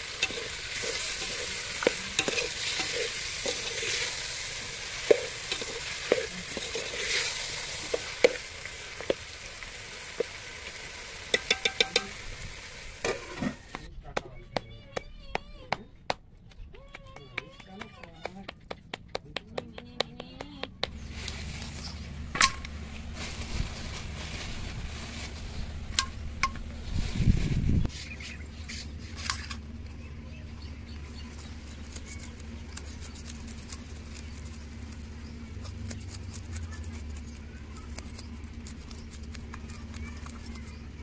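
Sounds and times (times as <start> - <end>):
knife scraping fish scales: 0.0 - 9.2
low rumble: 20.8 - 27.9.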